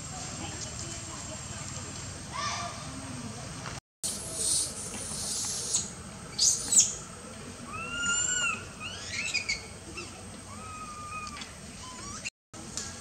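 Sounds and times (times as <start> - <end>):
baby monkey crying: 7.7 - 9.6, 10.5 - 12.3.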